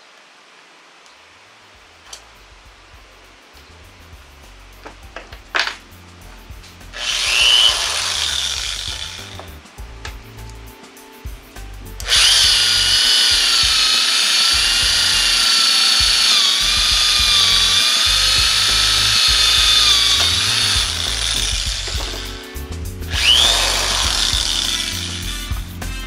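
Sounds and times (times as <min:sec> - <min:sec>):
electric drill whining: 0:07.0 - 0:09.5, 0:12.0 - 0:22.4, 0:23.1 - 0:25.6.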